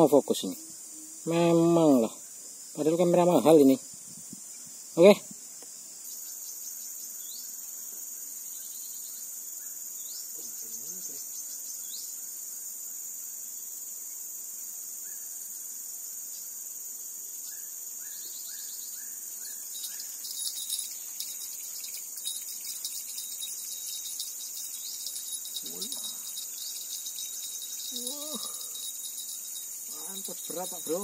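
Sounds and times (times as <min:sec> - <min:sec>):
high-pitched insect drone: 0:00.0 - 0:31.0
bird chirping: 0:05.9 - 0:12.3, 0:17.4 - 0:31.0.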